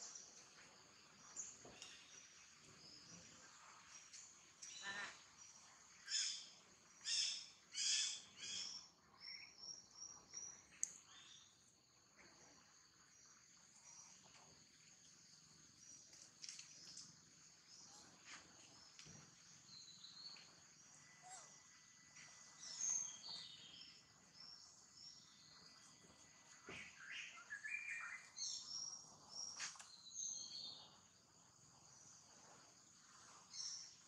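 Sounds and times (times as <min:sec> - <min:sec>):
loud bird chirping calls: 0:06.1 - 0:08.8.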